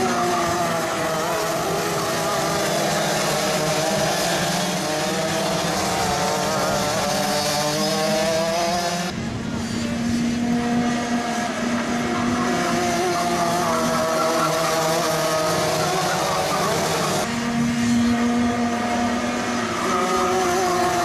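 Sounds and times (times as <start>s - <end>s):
racing kart engines: 0.0s - 21.0s.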